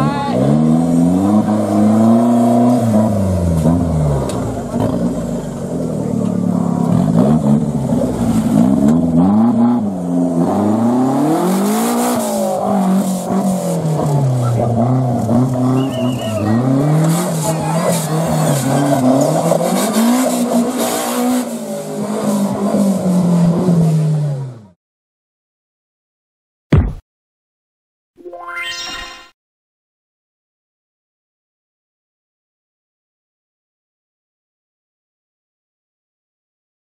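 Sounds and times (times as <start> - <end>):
off-road vehicle engine revving: 0.0 - 24.8.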